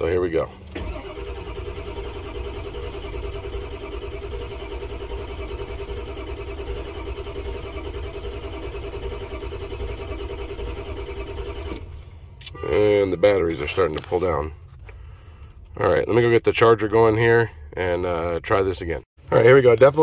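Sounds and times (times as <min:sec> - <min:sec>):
starter motor cranking engine: 0:00.6 - 0:12.0.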